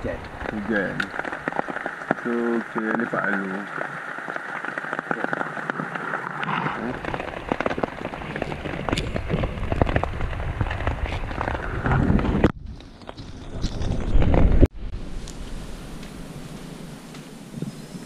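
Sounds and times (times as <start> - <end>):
heavy rain on tent fabric: 0.0 - 14.7
steady hiss: 14.8 - 18.0.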